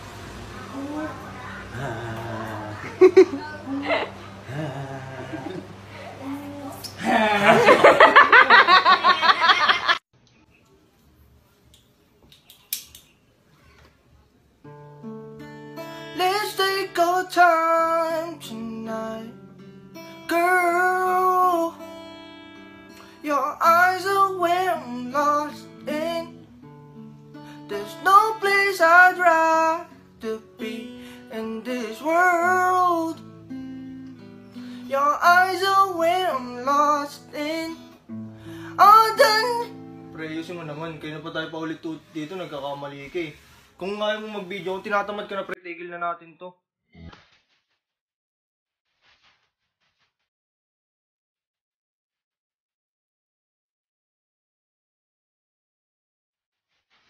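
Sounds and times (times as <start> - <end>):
acoustic guitar chords: 0.0 - 8.9, 14.6 - 41.4
person singing: 0.6 - 7.8, 16.1 - 19.4, 20.3 - 21.8, 23.2 - 26.4, 27.6 - 33.2, 34.8 - 37.9, 38.7 - 39.7.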